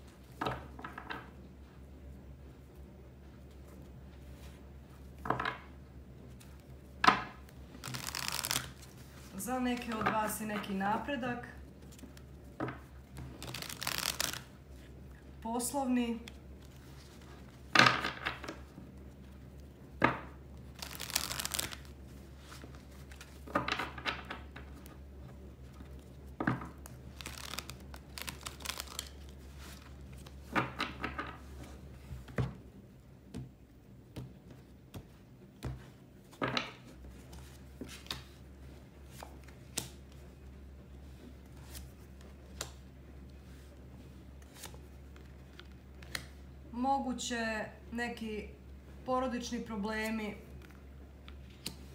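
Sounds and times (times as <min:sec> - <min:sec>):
cards shuffling: 0:07.2 - 0:10.8, 0:11.8 - 0:14.9, 0:20.0 - 0:25.0, 0:25.6 - 0:32.5, 0:36.6 - 0:38.4, 0:41.1 - 0:42.8, 0:44.4 - 0:46.4, 0:50.6 - 0:51.9.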